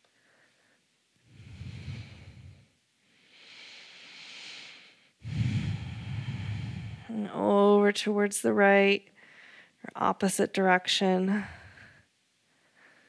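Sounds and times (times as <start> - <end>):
person breathing slowly: 0.0 - 7.1, 9.1 - 9.8, 11.4 - 13.0.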